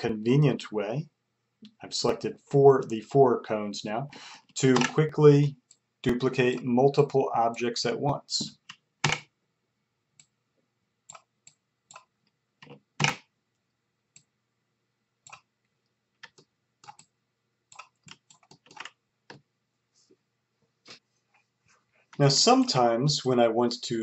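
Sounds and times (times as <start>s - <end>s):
mouse buttons clicking: 4.8s - 5.0s.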